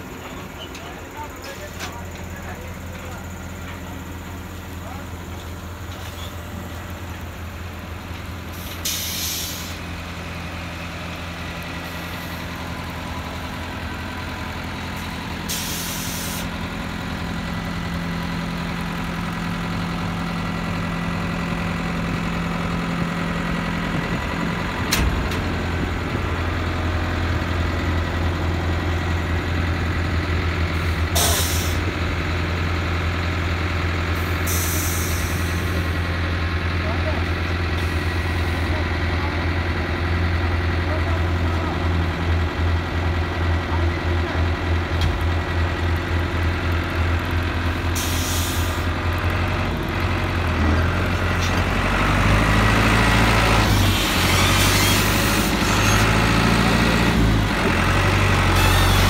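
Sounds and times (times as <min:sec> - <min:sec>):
air hisses: 0:08.6 - 0:09.8.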